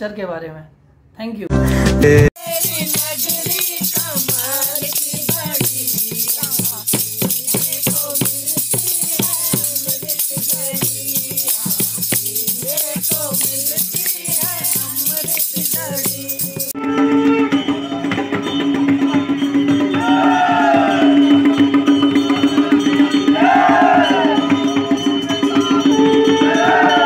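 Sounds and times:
man singing: 1.6 - 2.5
barrel drum beating: 2.4 - 16.8
jingling wooden clapper: 2.4 - 16.8
small hand cymbals: 2.4 - 17.7.

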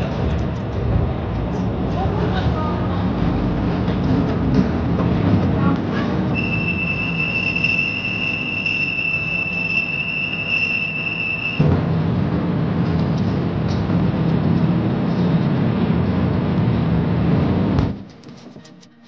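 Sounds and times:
train rumbling and rattling: 0.0 - 10.6, 11.2 - 18.9
high-pitched squeal: 6.3 - 11.7.

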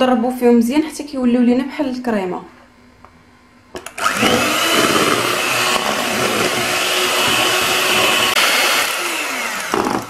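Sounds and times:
electric hand mixer whining: 3.8 - 10.0.

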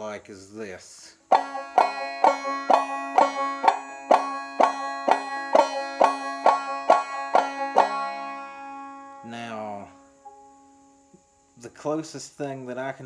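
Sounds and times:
banjo clawhammer strumming: 1.2 - 10.5.

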